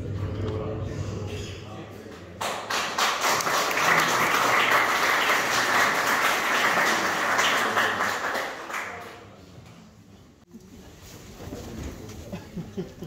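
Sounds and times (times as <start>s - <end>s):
audience applauding: 2.4s - 9.3s.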